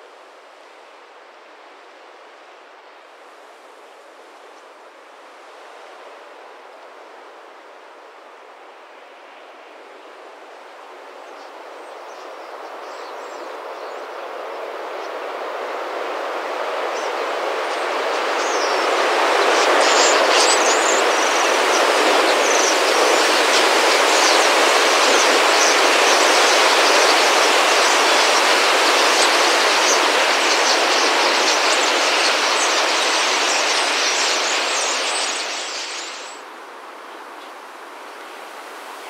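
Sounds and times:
rush of wingbeats: 0:16.0 - 0:36.4
high bird chirps: 0:30.4 - 0:36.4.

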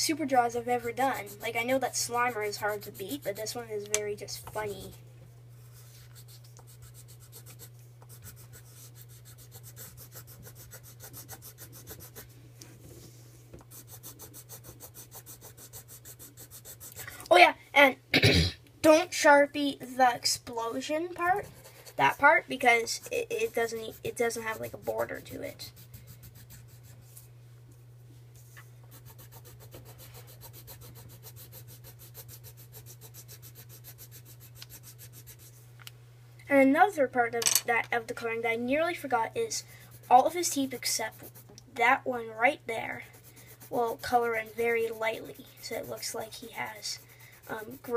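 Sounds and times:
steady low hum: 0:00.0 - 0:47.9
pencil crayon scratching on paper: 0:00.4 - 0:05.0, 0:05.7 - 0:12.3, 0:13.6 - 0:17.1, 0:21.1 - 0:27.3, 0:28.4 - 0:35.6, 0:39.5 - 0:47.9.

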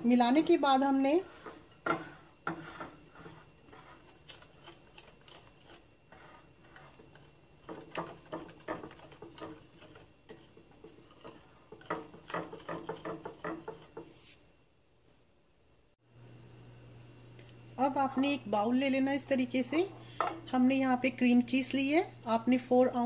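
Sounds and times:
batter stirred in a bowl: 0:00.0 - 0:14.4
utensil tapping against bowl: 0:07.2 - 0:14.1.

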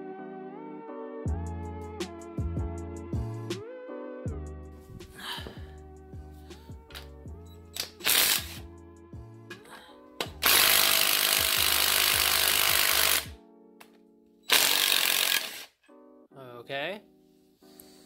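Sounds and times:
cordless power tool running: 0:08.0 - 0:08.6, 0:10.4 - 0:13.4, 0:14.5 - 0:15.7.

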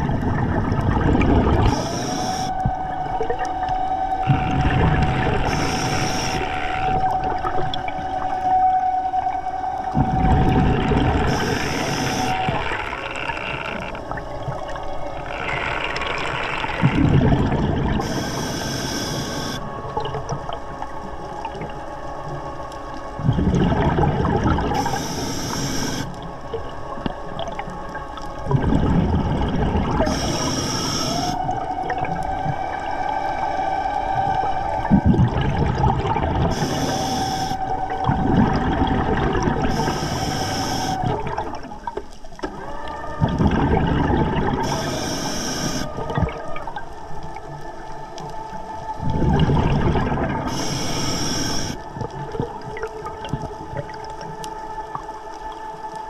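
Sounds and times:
exhaled bubbles rumbling: 0:00.0 - 0:56.0
regulator inhale hiss: 0:01.6 - 0:02.6, 0:05.4 - 0:06.9, 0:11.3 - 0:12.8, 0:18.0 - 0:19.6, 0:24.8 - 0:26.2, 0:30.0 - 0:31.4, 0:36.5 - 0:37.6, 0:39.7 - 0:41.1, 0:44.6 - 0:45.9, 0:50.5 - 0:51.8
dive scooter motor whine: 0:03.8 - 0:19.7, 0:36.4 - 0:38.4.

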